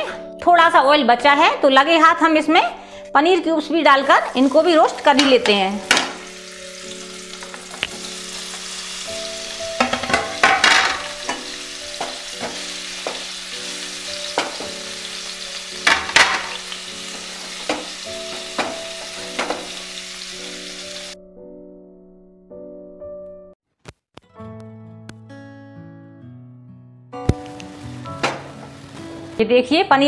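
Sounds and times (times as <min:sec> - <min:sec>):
cheese cubes sizzling in oil: 0:04.0 - 0:21.2, 0:27.6 - 0:29.4
spatula knocking against pan: 0:09.8 - 0:13.3, 0:17.6 - 0:19.7.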